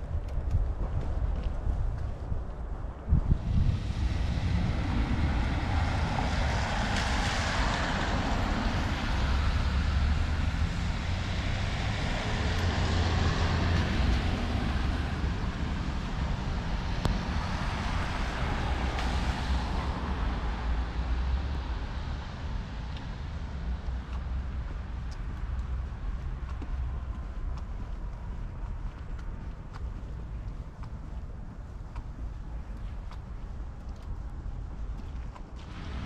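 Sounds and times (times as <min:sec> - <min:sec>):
low rumble: 0:00.0 - 0:36.0
tyre hiss on wet street: 0:03.4 - 0:24.7, 0:35.6 - 0:36.0.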